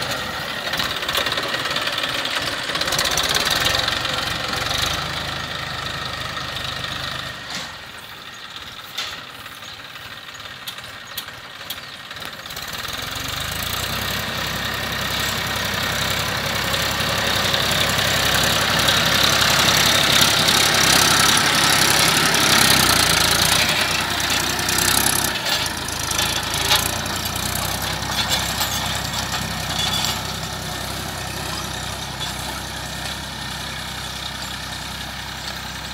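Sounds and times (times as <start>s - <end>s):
tractor diesel engine under load: 0.0s - 35.9s.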